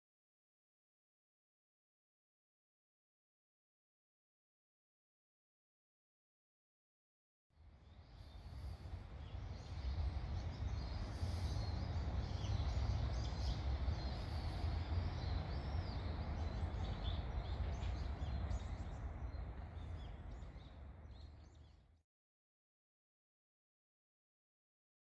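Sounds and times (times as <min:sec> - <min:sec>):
small birds chirping: 0:07.7 - 0:22.0.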